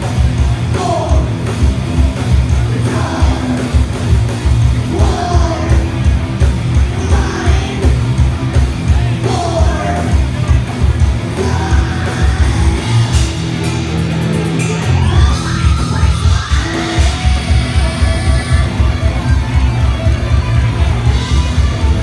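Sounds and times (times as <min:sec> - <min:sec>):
heavy metal band playing: 0:00.0 - 0:22.0
sung and yelled vocal: 0:00.6 - 0:01.5, 0:02.5 - 0:04.0, 0:04.8 - 0:06.2, 0:06.8 - 0:08.3, 0:08.9 - 0:10.6, 0:11.3 - 0:13.4.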